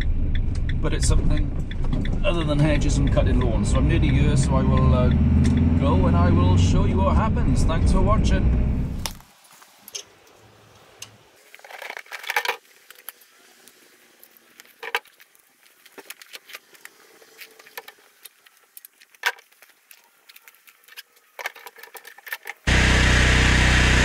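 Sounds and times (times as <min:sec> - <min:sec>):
hoses and fittings rattling on paving: 0:09.0 - 0:22.7.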